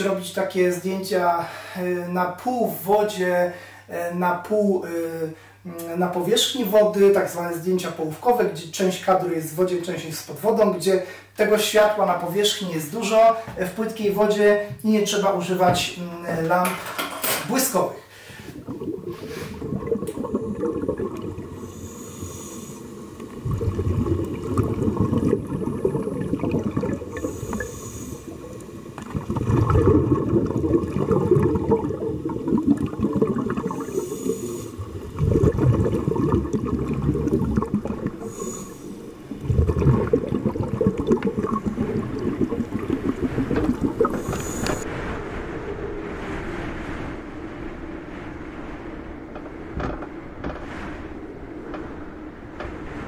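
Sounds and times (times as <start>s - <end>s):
low underwater rumbling: 18.4s - 53.0s
short high hiss: 44.1s - 44.8s.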